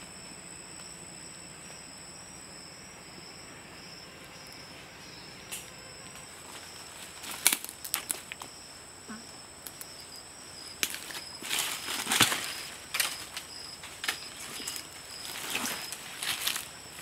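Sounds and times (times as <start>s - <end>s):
insects droning: 0.0s - 17.0s
footsteps crunching through dry leaves: 10.8s - 17.0s.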